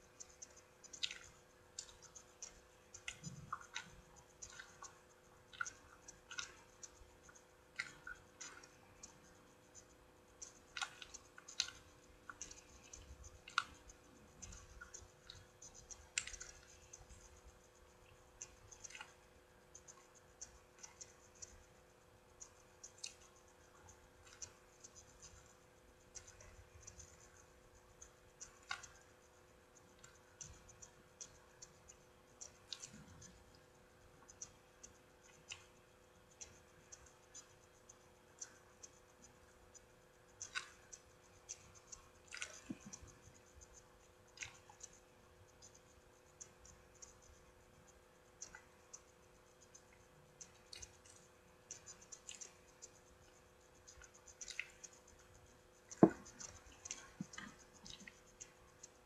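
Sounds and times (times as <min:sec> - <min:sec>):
faint hum: 0:00.0 - 0:59.0
chewing mouth clicks: 0:00.9 - 0:07.0, 0:40.4 - 0:43.2, 0:53.9 - 0:55.2.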